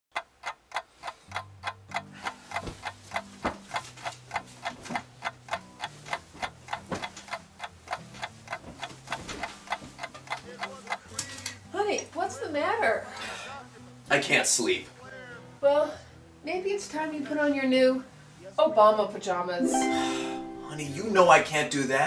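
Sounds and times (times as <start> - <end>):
clock ticking: 0.1 - 12.7.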